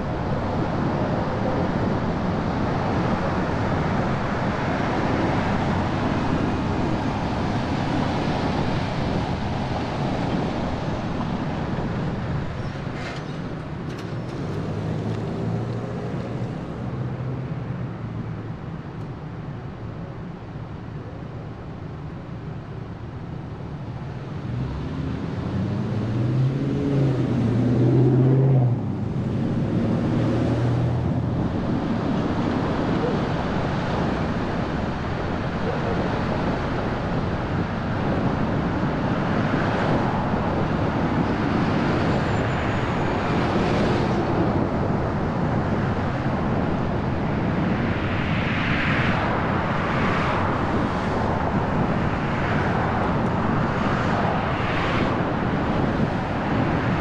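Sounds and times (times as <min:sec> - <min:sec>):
traffic road noise: 0:00.0 - 0:57.0
vehicles passing: 0:00.0 - 0:57.0.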